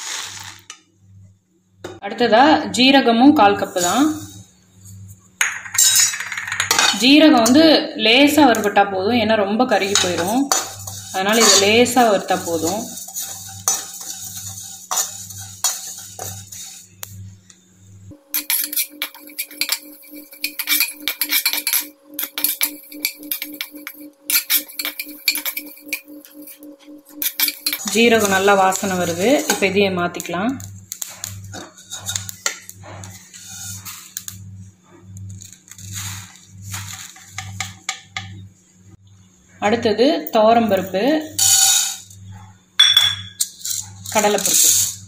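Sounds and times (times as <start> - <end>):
seeds pouring out of a pan: 0.0 - 0.7
metal spatula scraping a pan: 3.6 - 5.0, 5.8 - 7.7, 9.7 - 17.4, 18.2 - 29.8, 31.0 - 34.4, 35.4 - 37.8, 41.4 - 42.2, 43.4 - 45.0
metal pan clicking and knocking: 5.4 - 7.0
steady pulsing tone: 17.2 - 30.0.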